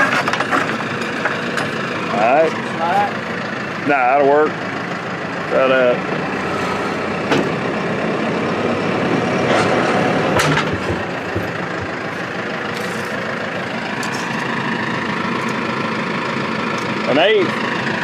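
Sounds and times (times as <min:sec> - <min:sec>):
tractor diesel engine idling: 0:00.0 - 0:18.0
sharp knocks: 0:10.3 - 0:12.0.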